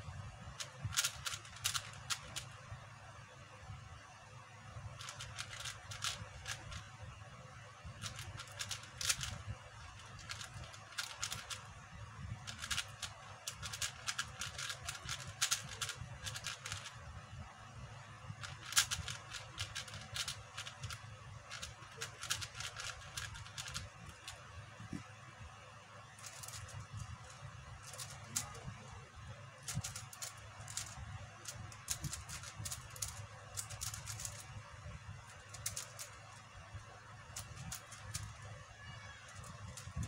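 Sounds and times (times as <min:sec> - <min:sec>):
plastic puzzle cube clicking: 0:00.6 - 0:02.6, 0:05.0 - 0:06.9, 0:08.0 - 0:11.7, 0:12.4 - 0:17.0, 0:18.4 - 0:24.4, 0:26.2 - 0:28.6, 0:29.6 - 0:34.5, 0:35.3 - 0:36.4, 0:37.3 - 0:40.0.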